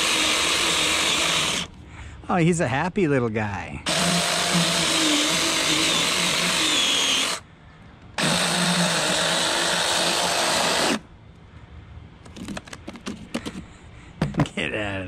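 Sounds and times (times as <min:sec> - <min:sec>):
mini chainsaw cutting pumpkin: 0:00.0 - 0:01.7, 0:03.9 - 0:07.4, 0:08.2 - 0:11.0.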